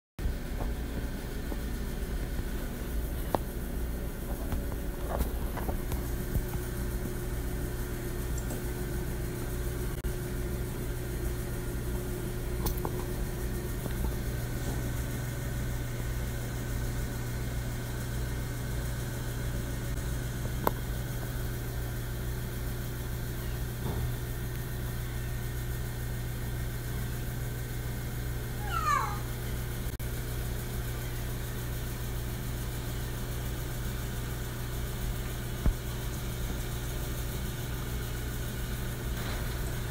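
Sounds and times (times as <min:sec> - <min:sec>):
steady low hum: 0:00.2 - 0:39.9
lemur meow-like call: 0:28.6 - 0:29.3.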